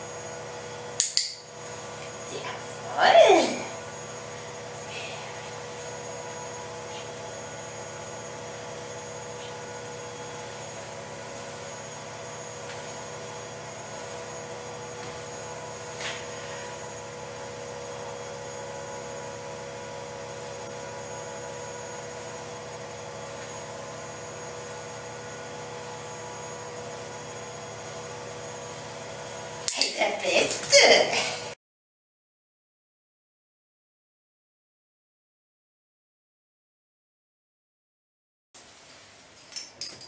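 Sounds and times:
steady hum with hiss: 0:00.0 - 0:31.6.

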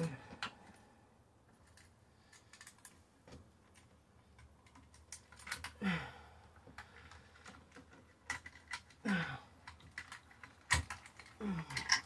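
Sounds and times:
electrical cable clicking and tapping: 0:06.4 - 0:12.0.

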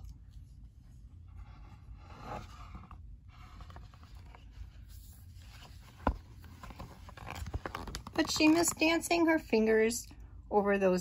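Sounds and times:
paper page rustling: 0:02.0 - 0:08.9.

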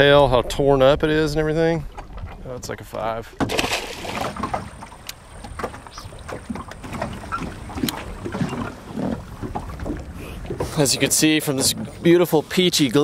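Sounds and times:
wind rumble on microphone: 0:00.0 - 0:03.3
water lapping against boat hull: 0:00.0 - 0:13.0.

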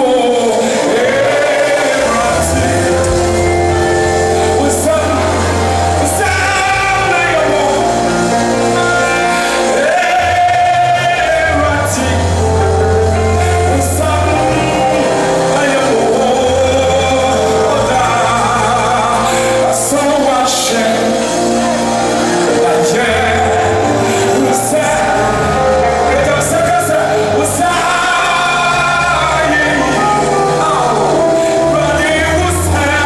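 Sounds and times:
bass guitar: 0:00.0 - 0:33.0
keyboard: 0:00.0 - 0:33.0.

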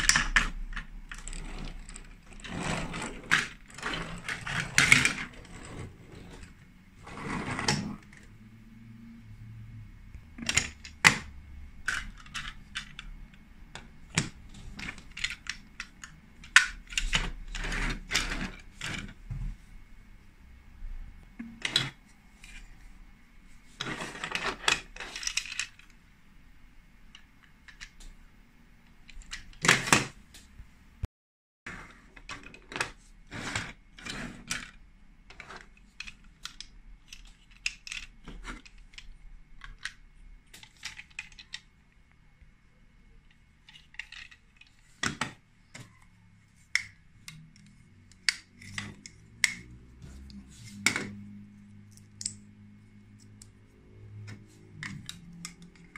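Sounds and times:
plastic toy bricks clicking: 0:35.3 - 0:41.7, 0:43.6 - 0:45.9.

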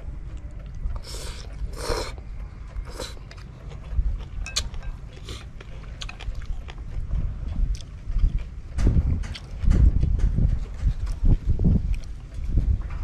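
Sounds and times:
wind rumble on microphone: 0:00.0 - 0:13.0
chewing with small clicks: 0:00.1 - 0:13.0
person slurping noodles: 0:01.0 - 0:02.2.

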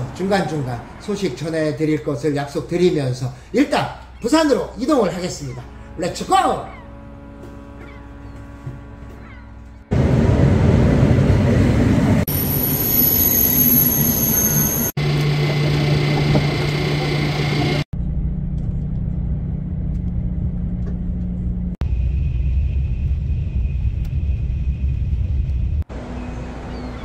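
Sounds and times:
train hum: 0:04.8 - 0:27.0
train rumble: 0:07.1 - 0:27.0.

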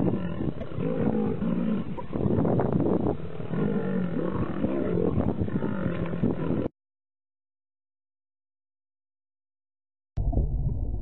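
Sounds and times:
lions growling: 0:00.0 - 0:06.7.

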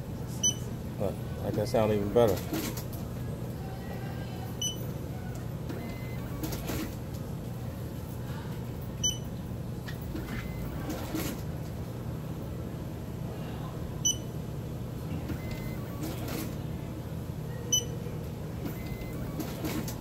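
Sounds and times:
steady low hum: 0:00.0 - 0:20.0
ticket checker beeping: 0:04.6 - 0:04.8, 0:14.1 - 0:14.3, 0:15.3 - 0:16.5, 0:17.7 - 0:18.0, 0:18.7 - 0:20.0.

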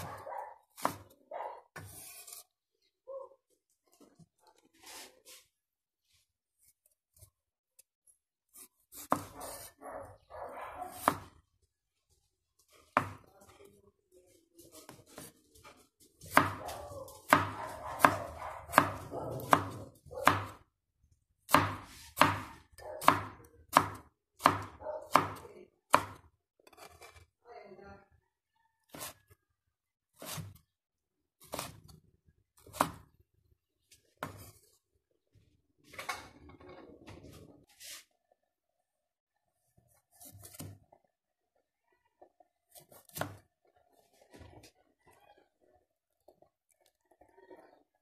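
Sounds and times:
knife chopping on cutting board: 0:00.8 - 0:01.2, 0:10.9 - 0:11.3, 0:12.9 - 0:13.3, 0:16.2 - 0:20.6, 0:21.5 - 0:27.2, 0:30.2 - 0:30.6, 0:31.4 - 0:31.8, 0:32.6 - 0:33.1, 0:40.2 - 0:40.8, 0:42.7 - 0:43.4.

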